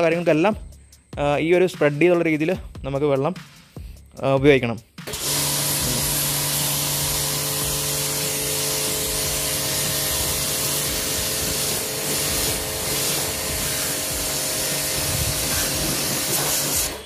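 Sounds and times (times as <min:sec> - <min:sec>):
pressure washer motor hum: 0:05.1 - 0:17.0
water jet hissing on metal: 0:05.1 - 0:17.0.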